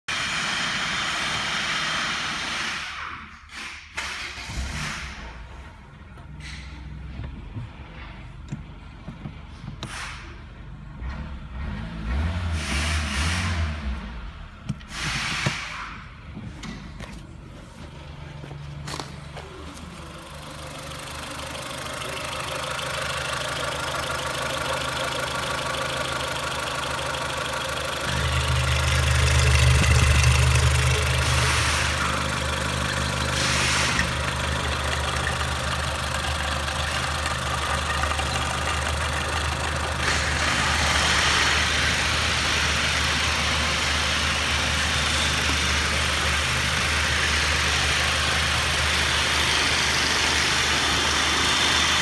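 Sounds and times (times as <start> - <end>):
car engine idling: 13.8 - 52.0.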